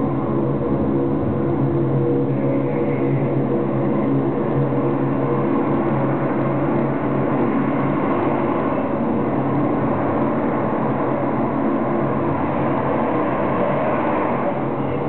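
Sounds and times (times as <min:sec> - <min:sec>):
dense drone of low tones: 0:00.0 - 0:15.0.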